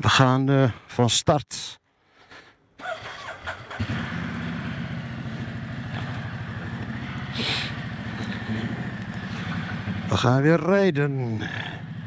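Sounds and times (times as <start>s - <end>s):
engine starter cranking: 2.8s - 4.6s
motorcycle engine idling: 2.8s - 12.0s.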